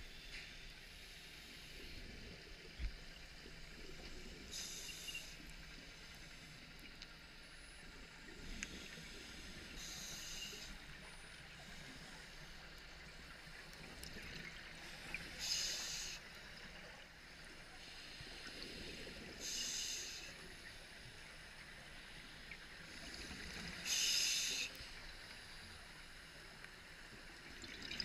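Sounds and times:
regulator inhalation hisses: 0:04.5 - 0:06.6, 0:08.6 - 0:10.8, 0:15.4 - 0:16.3, 0:17.8 - 0:20.5, 0:23.8 - 0:24.9.

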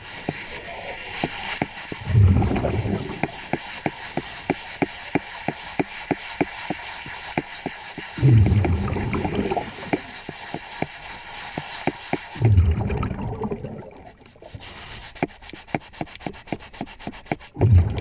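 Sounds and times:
exhaled bubbles rumbling underwater: 0:02.0 - 0:03.5, 0:08.2 - 0:10.1, 0:12.4 - 0:14.5, 0:17.6 - 0:18.0.

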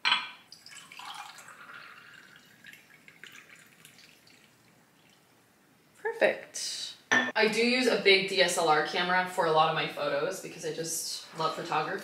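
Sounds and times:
water pouring into glass: 0:00.5 - 0:05.2.

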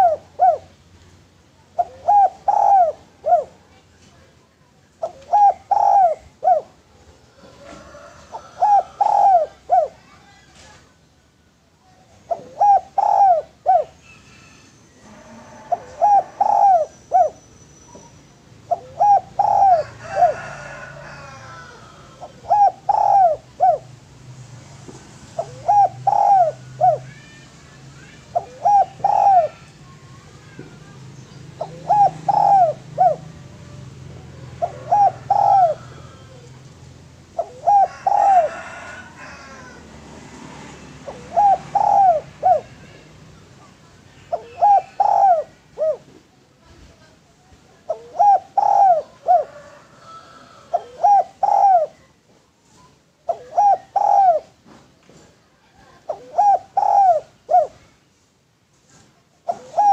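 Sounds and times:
dove cooing: 0:00.0 - 0:00.8, 0:01.7 - 0:03.7, 0:05.0 - 0:10.1, 0:12.1 - 0:24.0, 0:25.3 - 0:27.3, 0:28.1 - 0:40.0, 0:40.6 - 0:43.0, 0:44.2 - 0:46.2, 0:47.8 - 0:52.1, 0:53.3 - 0:54.6, 0:55.8 - 0:57.8, 0:59.4 - 0:59.9
small birds chirping: 0:15.9 - 0:19.9, 0:24.9 - 0:38.2.

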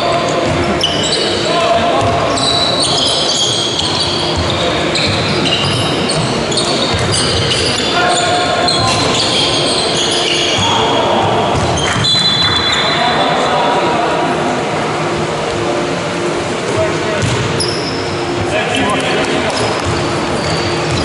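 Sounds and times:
basketball bouncing: 0:06.6 - 0:07.6, 0:10.6 - 0:12.2, 0:17.2 - 0:17.5, 0:19.5 - 0:21.0.

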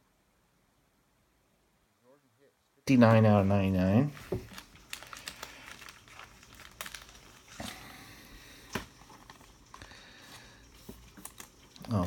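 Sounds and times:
plastic sleeve crinkling: 0:03.0 - 0:12.0.

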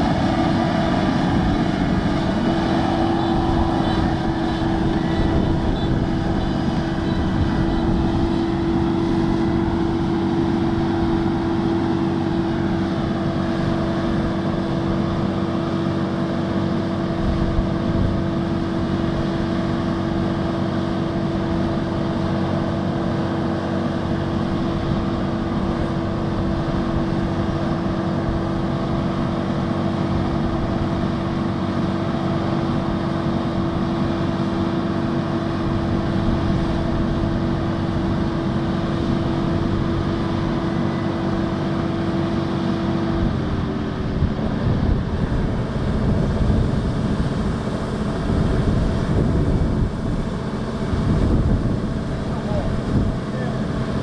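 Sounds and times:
combine harvester engine running: 0:00.0 - 0:54.0.

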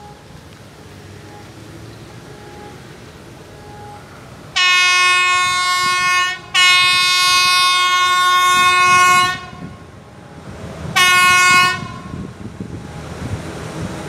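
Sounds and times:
locomotive air horn blasts: 0:02.2 - 0:13.3.

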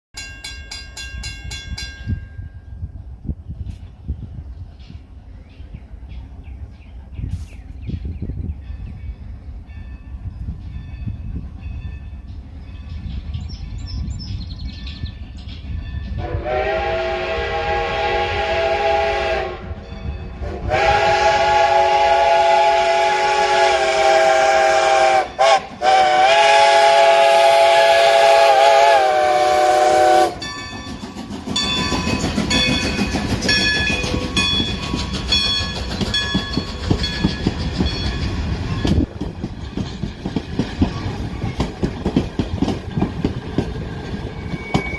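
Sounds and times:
crossing bell ringing: 0:00.2 - 0:03.0, 0:08.6 - 0:16.2, 0:19.8 - 0:20.6, 0:30.2 - 0:40.0
steam locomotive chime whistle: 0:14.6 - 0:39.1, 0:44.2 - 0:44.9
train wheels clacking over rails: 0:21.8 - 0:44.9.

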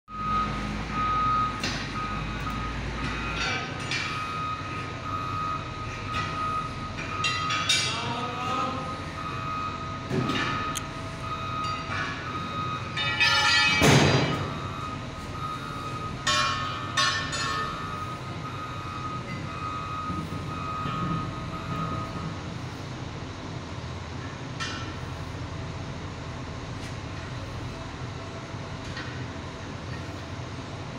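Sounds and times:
ringing metal clanks: 0:07.0 - 0:08.2, 0:11.6 - 0:14.7, 0:16.2 - 0:18.0.

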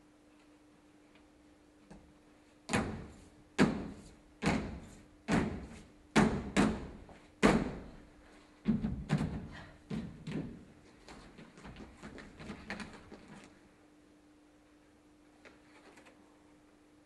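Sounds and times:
heavy thuds with echo: 0:02.7 - 0:08.1.

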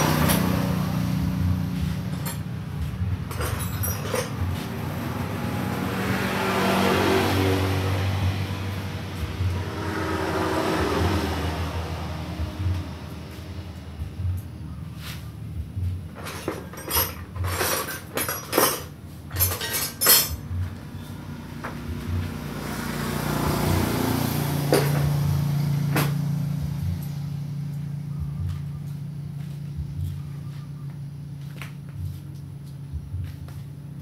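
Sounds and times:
metal clanking: 0:01.8 - 0:04.8, 0:16.1 - 0:20.8.

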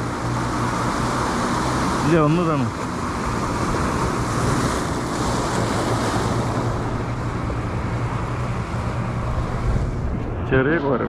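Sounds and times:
waves breaking over rocks: 0:00.0 - 0:11.0
wind buffeting microphone: 0:00.0 - 0:11.0.

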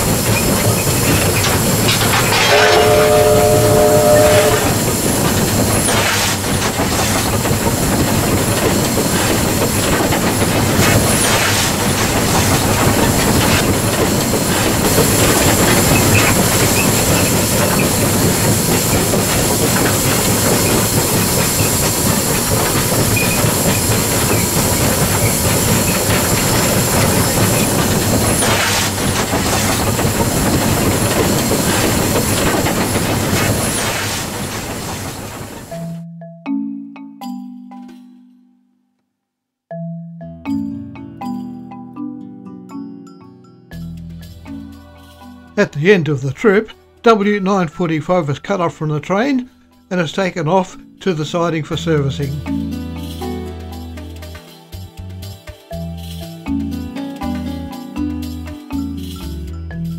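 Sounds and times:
steam hissing: 0:00.0 - 0:35.9
steam locomotive exhaust: 0:00.0 - 0:36.0
wheels on rail: 0:00.0 - 0:36.0.

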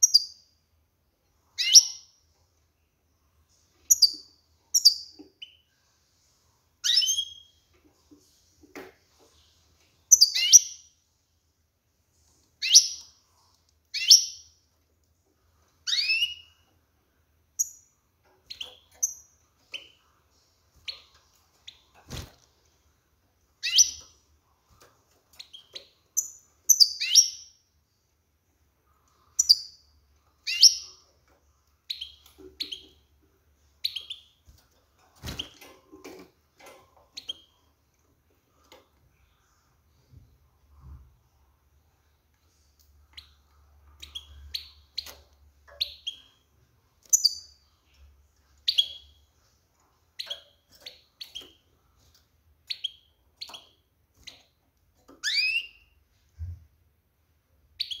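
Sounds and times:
goldfinch chirping calls: 0:30.4 - 0:30.9, 0:55.2 - 0:55.8.

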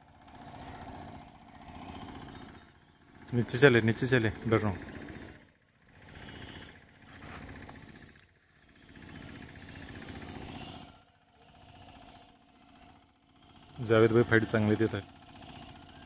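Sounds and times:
fishing reel buzzing: 0:06.0 - 0:06.8, 0:07.4 - 0:16.0.

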